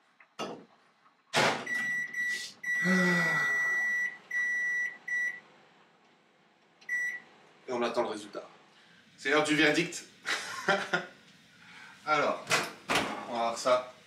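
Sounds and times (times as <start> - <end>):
microwave control panel beeps: 1.6 - 5.5, 6.8 - 7.3.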